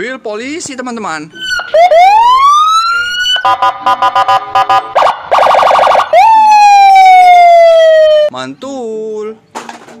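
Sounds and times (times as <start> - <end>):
police siren: 1.4 - 8.3.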